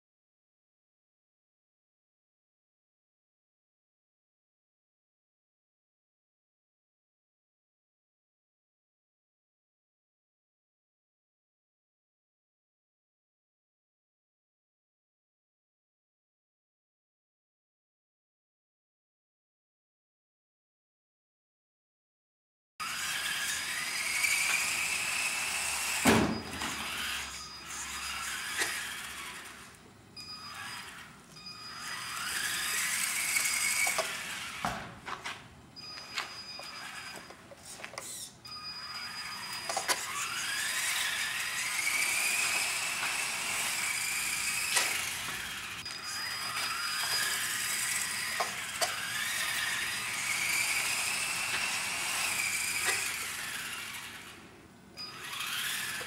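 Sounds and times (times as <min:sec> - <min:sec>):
rc car electric motor whining: 0:22.8 - 0:35.0, 0:35.9 - 0:56.0.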